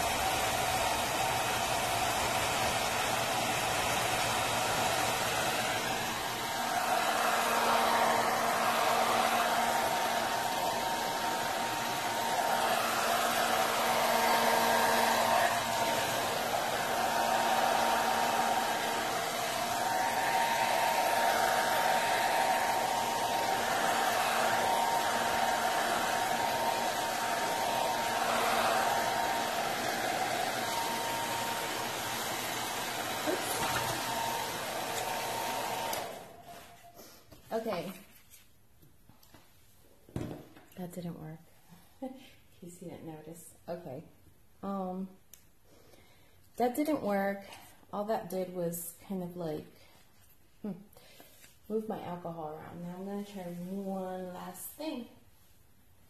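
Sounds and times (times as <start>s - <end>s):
hair dryer blowing: 0.0s - 38.0s, 51.0s - 55.1s.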